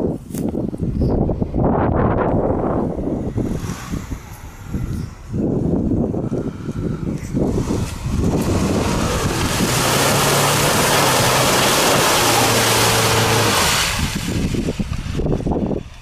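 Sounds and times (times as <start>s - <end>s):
car engine under load: 1.3s - 16.0s
tyres rushing through mud: 6.9s - 16.0s.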